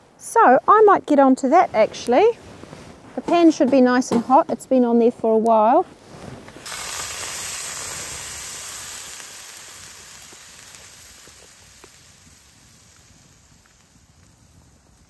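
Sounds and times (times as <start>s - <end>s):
sauce sizzling in a hot pan: 6.6s - 15.0s.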